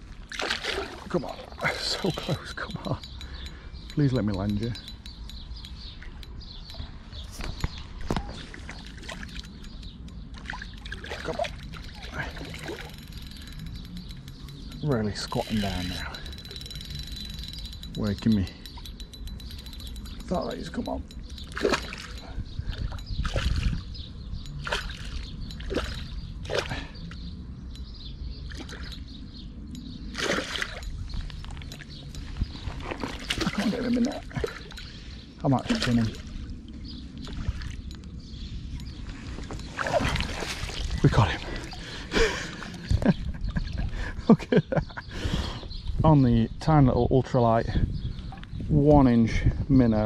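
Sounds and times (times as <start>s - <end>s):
water splashing from thrashing fish: 0.2s - 1.5s, 24.6s - 26.7s, 30.2s - 30.8s.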